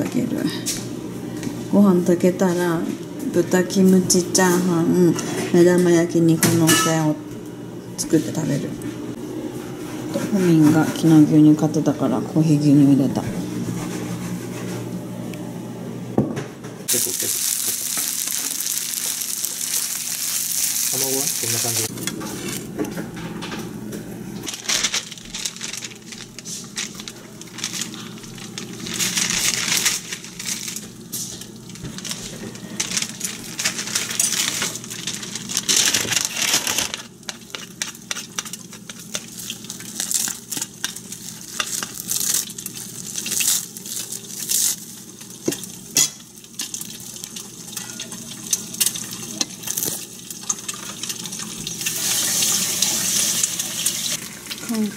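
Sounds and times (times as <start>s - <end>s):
fried rice sizzling in a frying pan: 16.9s - 22.5s, 24.5s - 54.9s.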